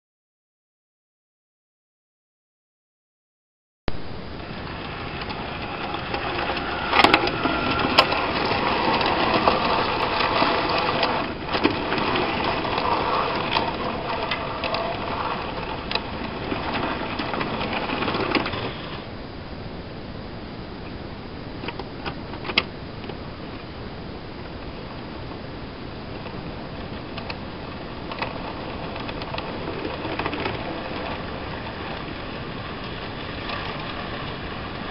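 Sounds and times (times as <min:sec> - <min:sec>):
model train rattling on track: 0:04.4 - 0:19.1, 0:26.1 - 0:34.9.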